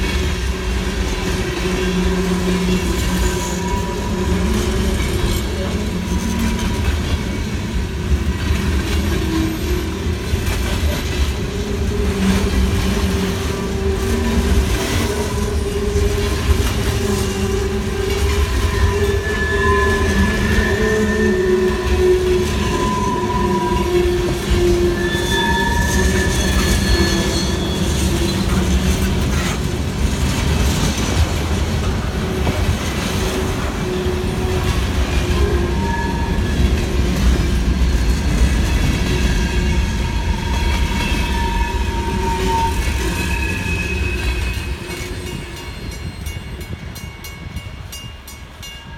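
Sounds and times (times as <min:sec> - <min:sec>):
train wheels rumbling on rail: 0:00.0 - 0:48.9
high-pitched wheel squeals: 0:02.2 - 0:06.5, 0:13.7 - 0:29.0, 0:33.8 - 0:36.9, 0:39.1 - 0:46.7.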